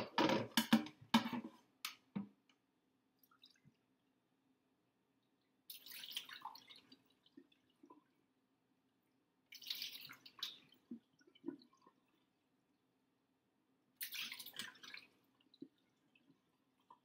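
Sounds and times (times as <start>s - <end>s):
water dripping and splashing: 3.2s - 3.8s, 5.7s - 8.2s, 9.5s - 12.2s, 14.0s - 17.0s
water pouring into a cup: 5.7s - 8.1s, 9.5s - 12.2s.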